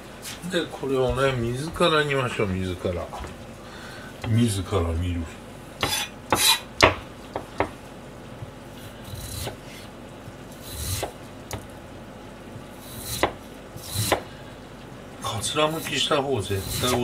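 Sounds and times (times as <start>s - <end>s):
knife slicing radish skin: 9.0s - 9.8s, 10.6s - 11.2s, 12.8s - 14.3s, 15.7s - 17.0s.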